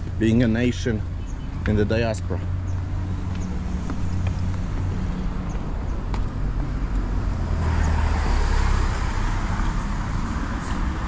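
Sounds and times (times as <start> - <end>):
car driving past: 7.1 - 11.0.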